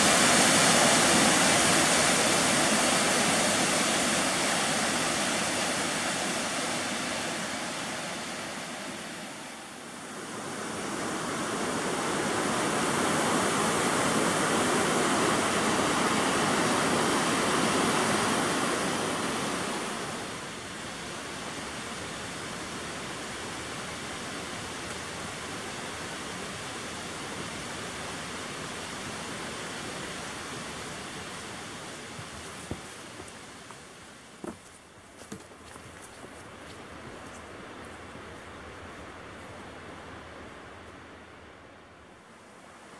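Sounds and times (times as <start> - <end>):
waterfall rushing: 0.0 - 32.2.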